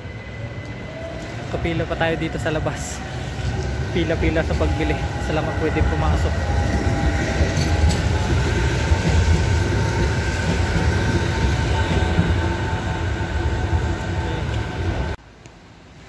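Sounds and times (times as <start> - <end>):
tram wheels rumbling on rails: 0.0 - 15.2
tram whine: 0.0 - 15.2.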